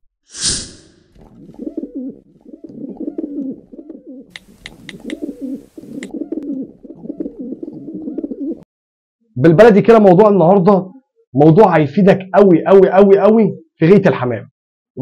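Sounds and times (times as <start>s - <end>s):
brief hiss: 0.3s - 1.0s
pigeons cooing: 1.2s - 8.7s
mouse clicks: 4.3s - 5.2s.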